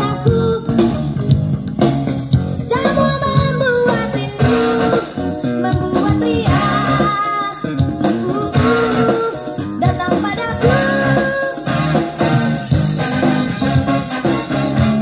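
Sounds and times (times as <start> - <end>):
person singing: 2.7 - 12.0
shaker percussion: 3.9 - 15.0.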